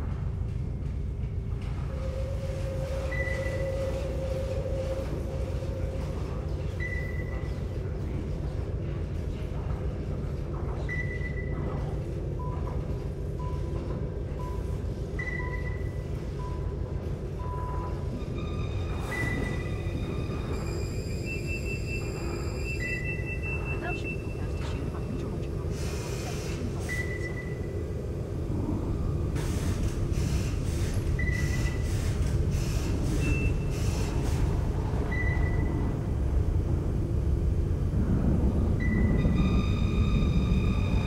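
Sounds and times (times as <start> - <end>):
low rumble: 27.1 - 31.3, 34.2 - 41.0.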